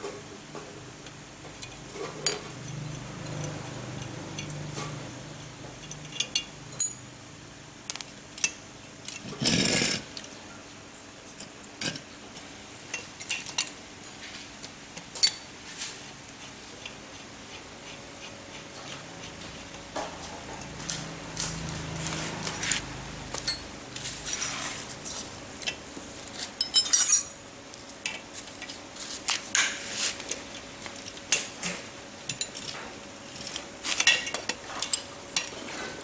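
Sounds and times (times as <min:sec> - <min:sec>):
metal tools clinking and knocking: 0:05.8 - 0:07.3, 0:26.6 - 0:27.4.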